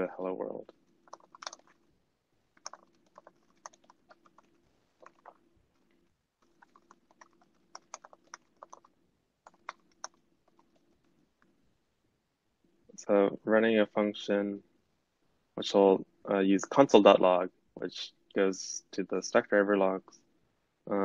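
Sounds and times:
typing on keyboard: 1.0 - 1.8, 2.6 - 5.4, 6.4 - 11.1.

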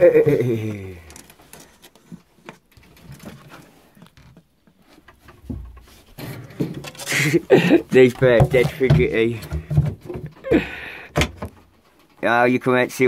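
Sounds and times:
quiet rustling: 0.7 - 10.4.

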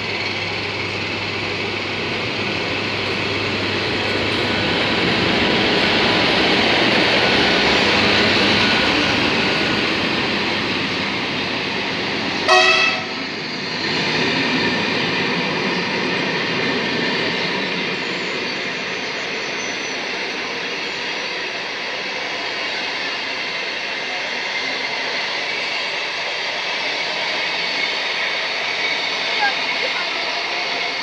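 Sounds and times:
train wheels rumbling on rail: 0.0 - 31.0
train horn blast: 12.4 - 13.3.

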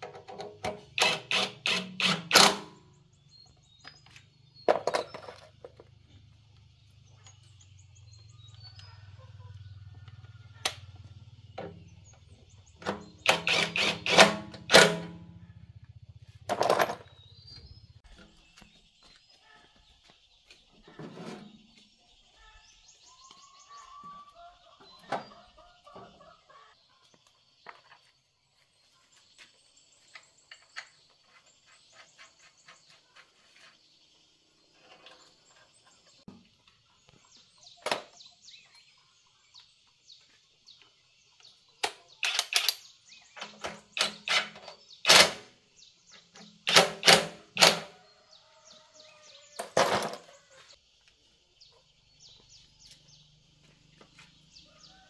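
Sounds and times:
birds chirping: 0.0 - 55.0
metal tools clanking: 16.5 - 17.2.

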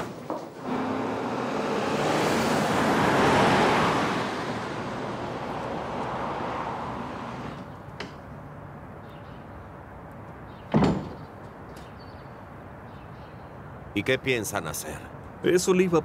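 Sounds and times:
car driving past: 0.6 - 7.7.

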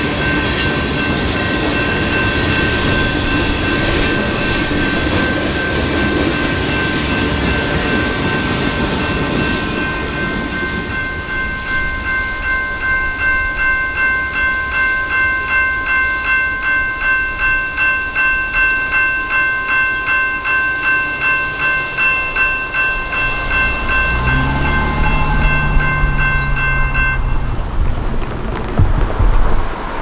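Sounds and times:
electronic crossing bell ringing: 0.2 - 27.6
car engine: 21.8 - 29.9.

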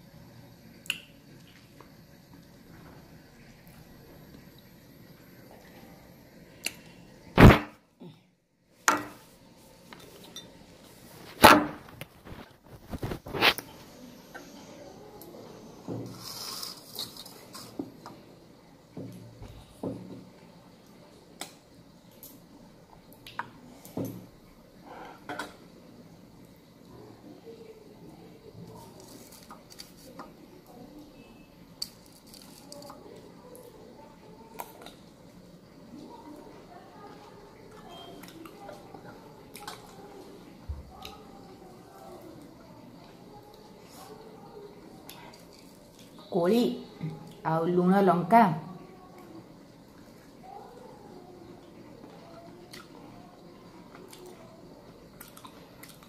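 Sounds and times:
soft chewing: 28.6 - 30.8, 31.8 - 46.3, 49.0 - 56.0.

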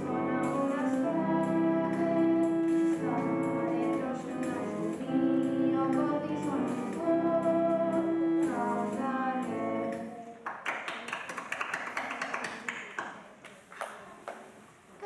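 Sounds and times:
held sung notes: 0.0 - 10.3
instrumental backing: 0.0 - 10.3
hand-clapping applause: 10.4 - 14.4.

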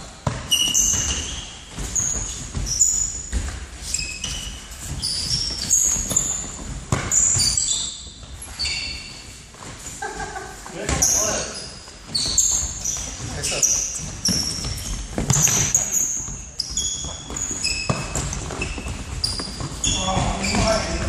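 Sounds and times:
shoe squeaks on hall floor: 0.0 - 10.0, 10.7 - 21.0
ball kicked and bouncing: 0.2 - 7.6, 14.0 - 21.0.

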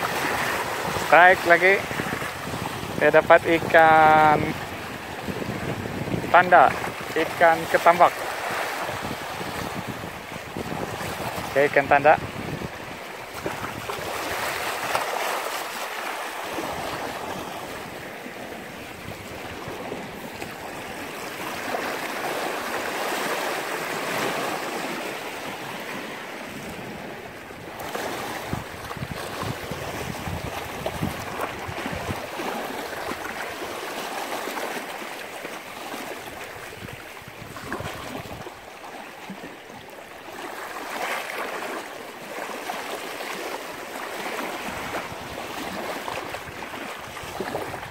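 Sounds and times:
small waves lapping at shore: 0.0 - 47.9.

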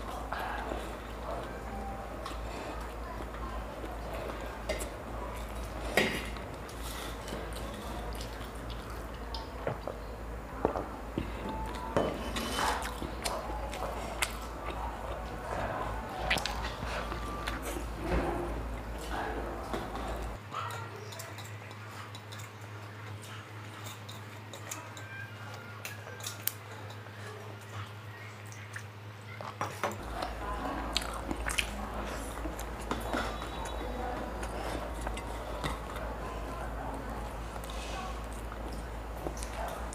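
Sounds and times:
chewing and mouth noises: 0.0 - 10.0, 11.2 - 39.9
person chewing noodles: 12.6 - 18.0, 30.0 - 39.9
drinking: 30.0 - 39.9.

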